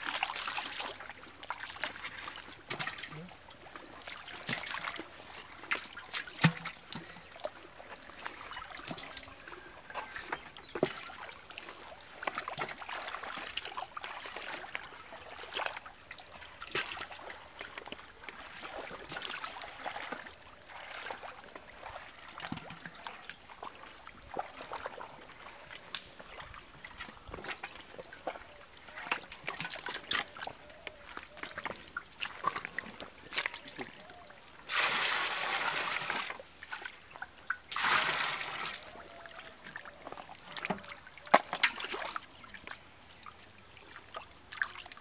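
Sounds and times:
wet slaps and splashes: 4.3s - 5.0s, 6.2s - 7.0s, 37.7s - 38.2s.

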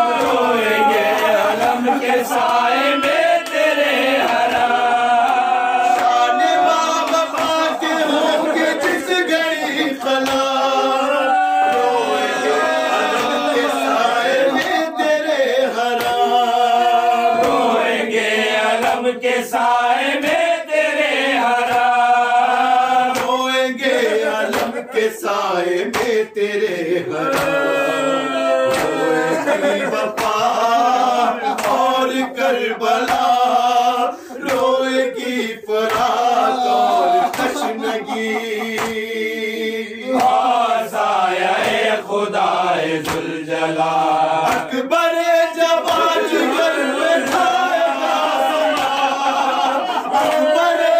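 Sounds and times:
men chanting in unison: 0.0s - 50.9s
hand slaps on chest: 16.0s - 16.2s, 21.7s - 22.0s, 23.2s - 23.4s, 24.5s - 24.8s, 27.2s - 27.6s, 30.2s - 30.5s, 38.7s - 39.1s, 40.2s - 40.4s, 43.0s - 43.3s, 44.4s - 44.7s.

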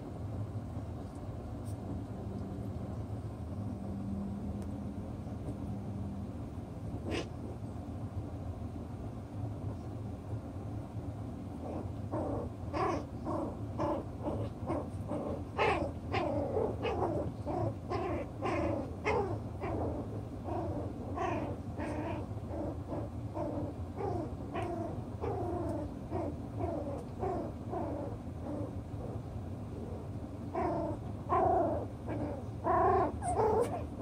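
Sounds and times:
puppies whining: 11.7s - 29.2s, 29.8s - 34.0s.

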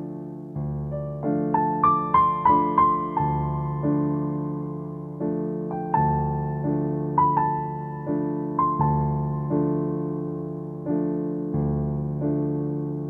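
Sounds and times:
slow gentle piano music: 0.0s - 13.0s.

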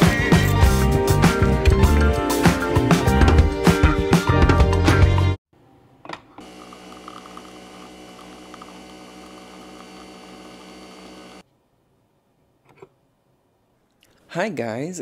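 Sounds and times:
electrical hum: 6.4s - 11.4s.

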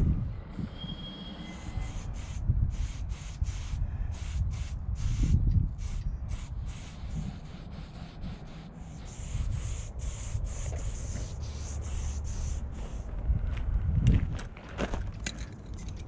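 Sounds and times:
spray paint can hissing: 0.6s - 13.1s.

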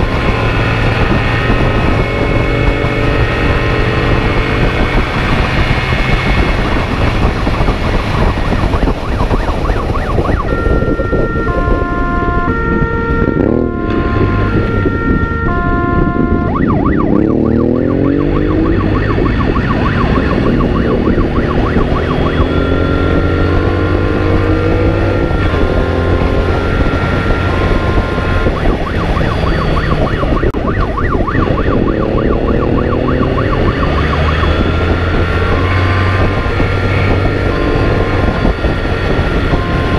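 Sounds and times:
motorcycle engine accelerating: 0.0s - 39.9s
two-tone siren: 0.0s - 39.9s
wind rush: 0.0s - 39.9s.

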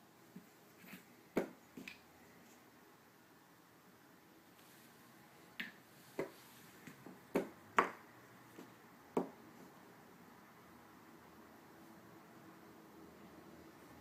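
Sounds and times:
chess pieces knocking on board: 1.4s - 2.0s, 5.6s - 8.0s.

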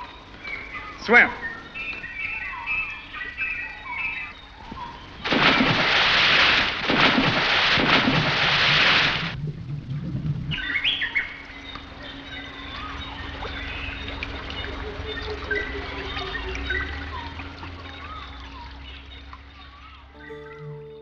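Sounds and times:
jungle bird calls: 0.0s - 5.7s, 10.5s - 21.0s
rushing water: 2.5s - 20.9s
loud splash into water: 5.2s - 11.4s.

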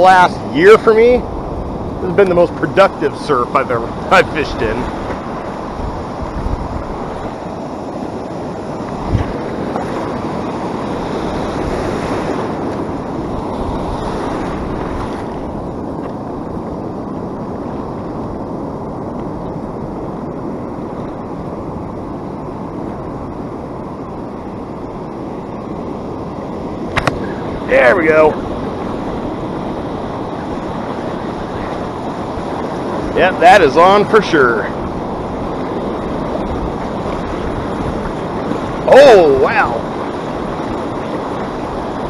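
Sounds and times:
ocean surf breaking: 0.0s - 42.0s
brief knock: 27.0s - 27.2s.

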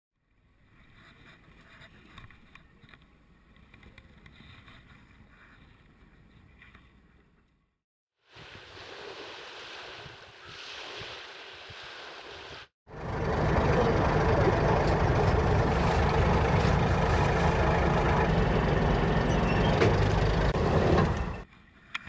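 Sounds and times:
surf: 8.2s - 12.7s
boat engine rumble: 12.2s - 21.5s.

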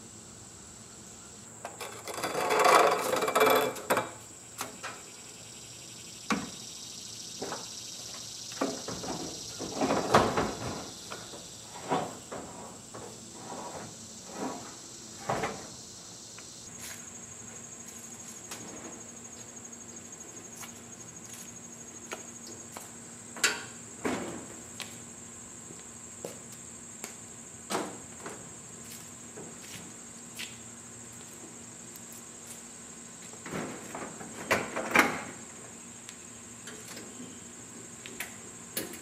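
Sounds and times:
insects trilling: 0.0s - 39.0s
pulsing insect trill: 0.3s - 23.3s.

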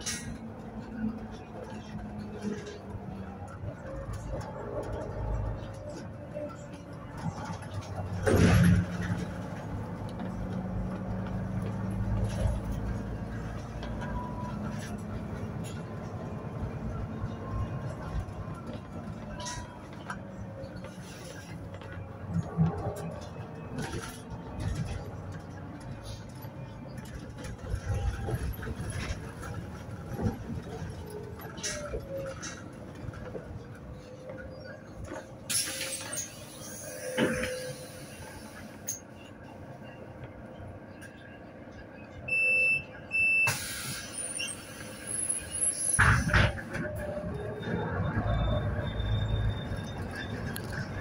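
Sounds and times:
bus diesel engine rumbling: 0.0s - 51.0s
air hiss: 43.5s - 45.1s.

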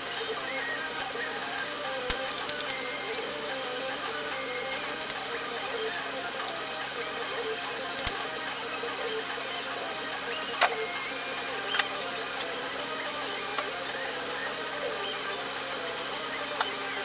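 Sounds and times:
steady background hum: 0.0s - 17.0s
screwdriver clicking on metal: 1.9s - 5.3s.

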